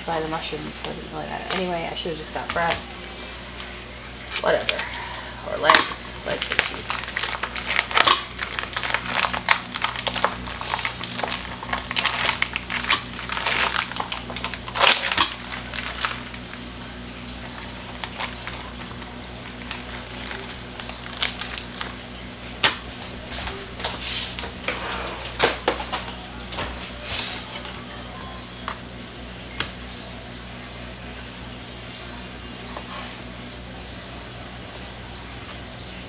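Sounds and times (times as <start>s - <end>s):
plastic packaging crinkling: 5.7s - 28.7s.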